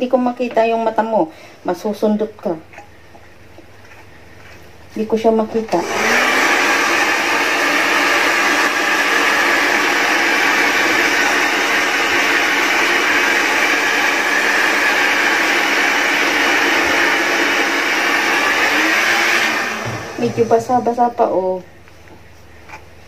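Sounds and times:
hair dryer running: 5.7s - 21.0s.

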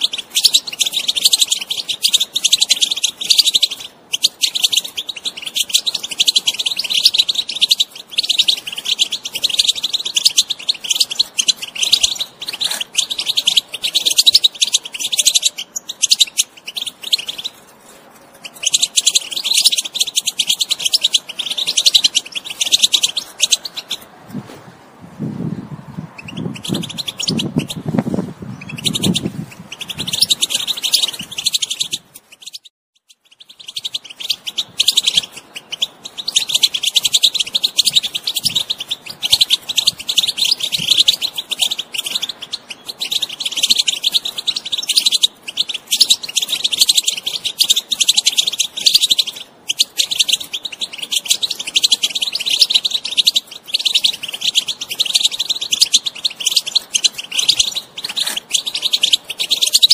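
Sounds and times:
finch twittering song: 0.0s - 59.9s.

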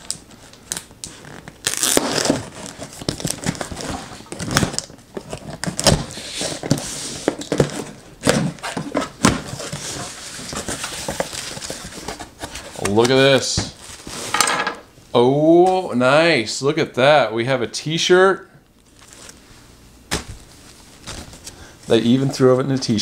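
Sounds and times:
packing tape tearing: 0.0s - 7.7s
cardboard scraping and rustling: 1.3s - 14.4s.

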